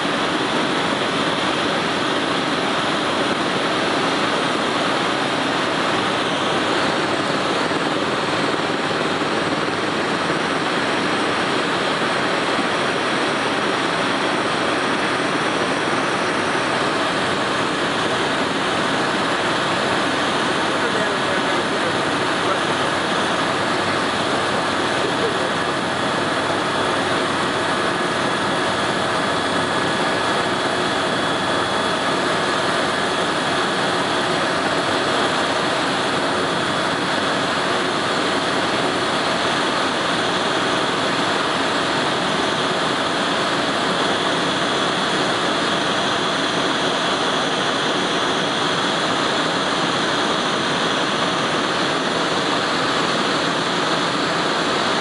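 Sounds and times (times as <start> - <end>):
aircraft engine and airflow drone: 0.0 - 55.0.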